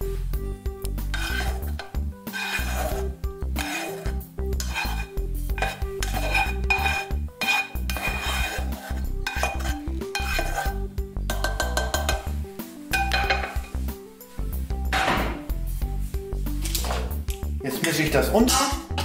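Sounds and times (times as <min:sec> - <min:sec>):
background music with beat: 0:00.0 - 0:19.0
spatula scraping frying pan: 0:01.0 - 0:14.0
utensils knocking against pot: 0:01.2 - 0:02.9, 0:03.6 - 0:12.3, 0:12.9 - 0:13.8.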